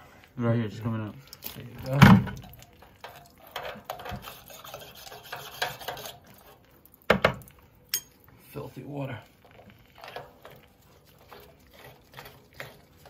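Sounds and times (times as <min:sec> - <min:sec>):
metal rod scraping inside valve: 0:03.5 - 0:06.6.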